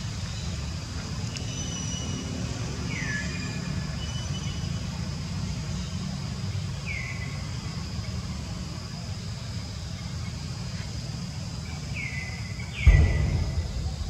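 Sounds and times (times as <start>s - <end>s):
steady low rumble: 12.8s - 14.0s.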